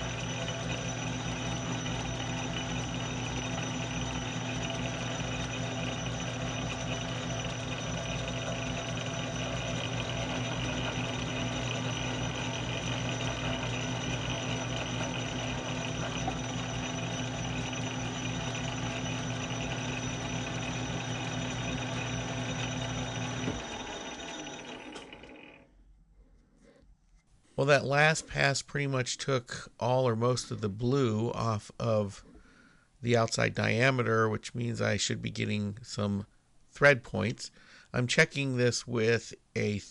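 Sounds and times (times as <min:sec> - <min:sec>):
metal lathe humming: 0:00.0 - 0:25.7.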